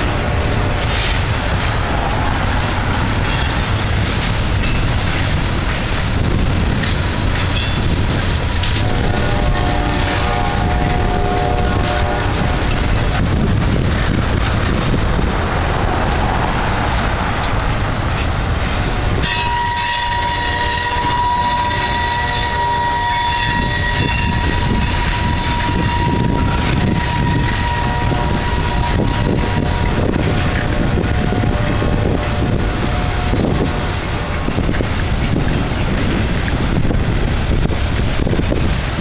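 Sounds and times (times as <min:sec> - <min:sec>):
train wheels rumbling on rail: 0:00.0 - 0:39.0
high wheel squeal: 0:02.0 - 0:05.2, 0:18.8 - 0:33.9.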